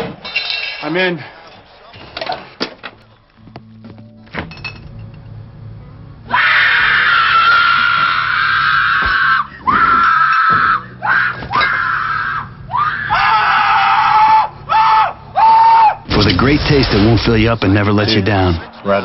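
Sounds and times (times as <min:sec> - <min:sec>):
high-pitched screaming: 0:06.3 - 0:16.1.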